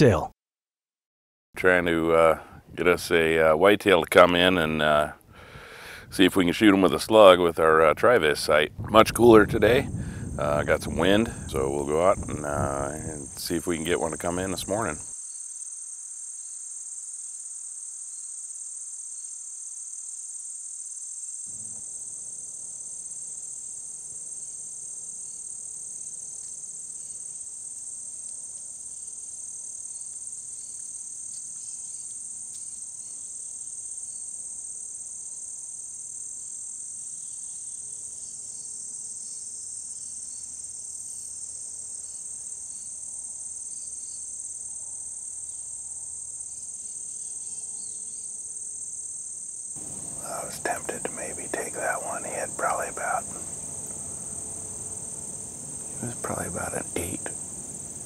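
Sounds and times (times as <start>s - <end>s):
high-pitched insect chorus: 8.0s - 58.0s
faint low background noise: 21.5s - 58.0s.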